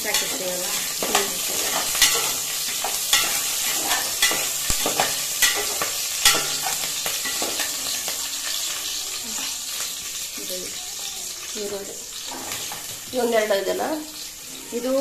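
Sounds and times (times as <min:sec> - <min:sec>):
chillies sizzling in hot oil: 0:00.0 - 0:15.0
spoon knocking and scraping pot: 0:00.1 - 0:08.3, 0:12.2 - 0:13.0.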